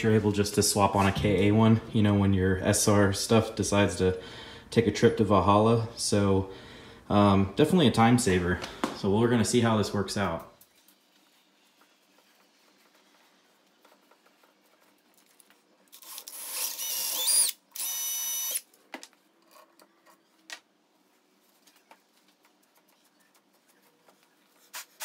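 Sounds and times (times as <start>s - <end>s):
cordless drill whining: 16.0s - 18.7s.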